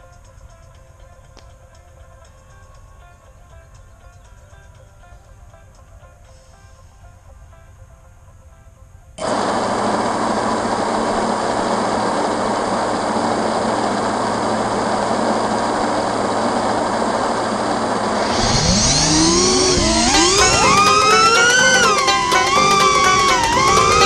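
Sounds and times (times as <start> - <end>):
drone motors whirring: 9.2 - 24.0.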